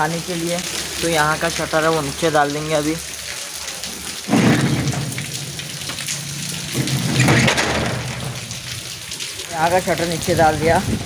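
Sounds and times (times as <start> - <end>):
metal rolling shutter rattling: 4.2 - 9.1.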